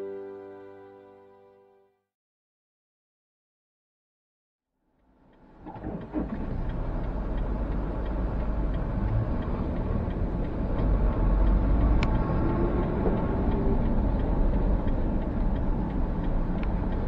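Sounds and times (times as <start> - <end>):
engine and tyre rumble: 4.9 - 17.0
faint regular ticking: 5.0 - 17.0.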